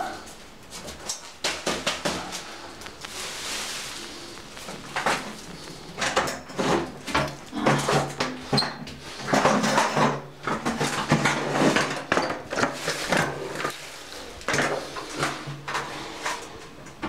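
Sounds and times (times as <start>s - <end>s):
plastic sheeting rustling: 0.7s - 7.5s.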